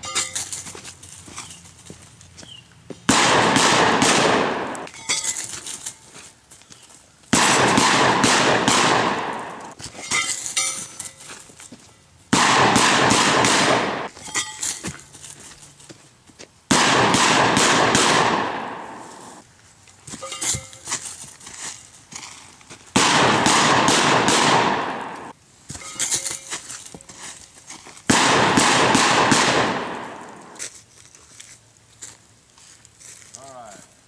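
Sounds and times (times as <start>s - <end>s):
shotgun blasts with echo: 3.1s - 4.9s, 7.3s - 9.8s, 12.3s - 14.1s, 16.7s - 19.4s, 23.0s - 25.3s, 28.1s - 30.6s.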